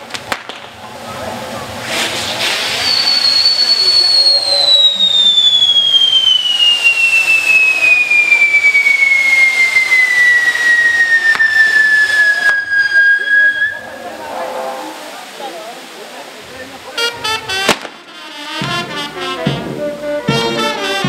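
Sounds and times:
sharp pops: 0:00.0 - 0:00.8, 0:04.7 - 0:13.0, 0:17.6 - 0:18.8
firework hissing crackle: 0:00.0 - 0:21.0
firework whistling down in pitch: 0:01.7 - 0:15.2.

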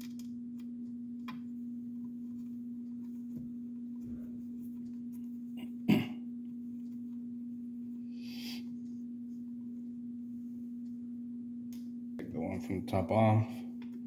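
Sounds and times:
steady low hum: 0:00.0 - 0:14.0
person coughing: 0:05.6 - 0:06.3.

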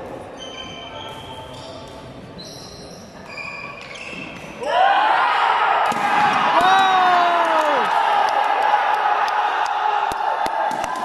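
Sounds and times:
shoes squeaking on court floor: 0:00.2 - 0:04.7.

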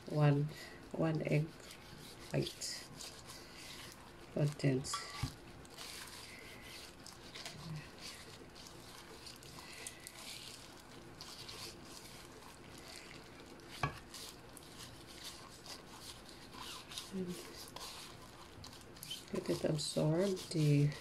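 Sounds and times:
gloved hand squishing on fish: 0:00.6 - 0:21.0.

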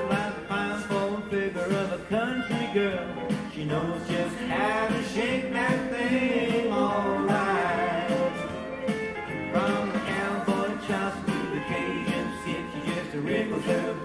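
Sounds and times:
band playing over steady beat: 0:00.0 - 0:14.0
country song with guitar: 0:00.0 - 0:14.0.

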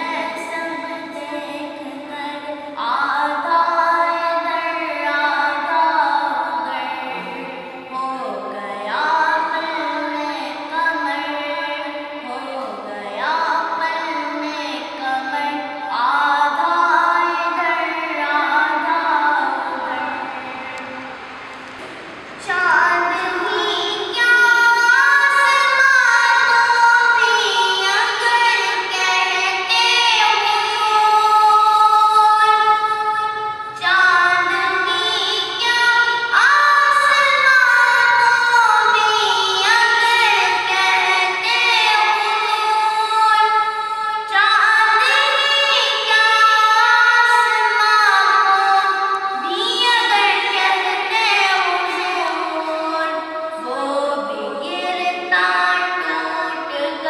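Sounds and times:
boy singing unaccompanied: 0:00.0 - 0:21.0, 0:22.4 - 0:57.0.

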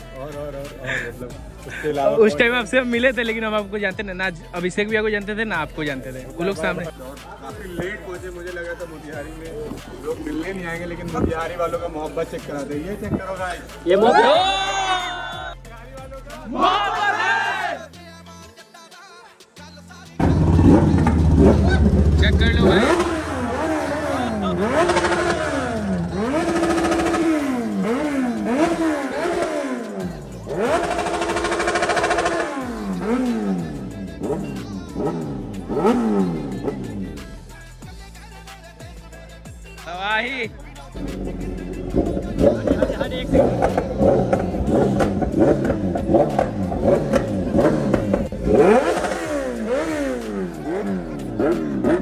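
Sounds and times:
motorcycle engine revving: 0:20.2 - 0:37.4, 0:41.0 - 0:52.0.

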